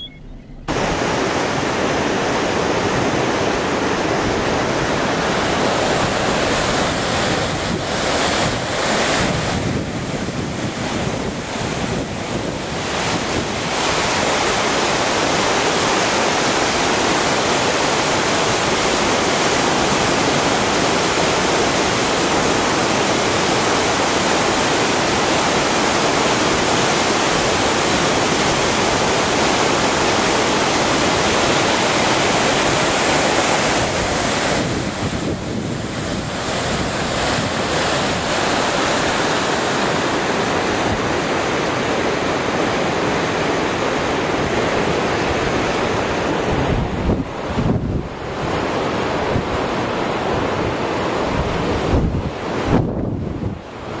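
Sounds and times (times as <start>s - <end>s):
wind buffeting microphone: 0.0s - 16.0s, 26.6s - 42.1s, 44.1s - 54.0s
choppy water: 0.0s - 54.0s.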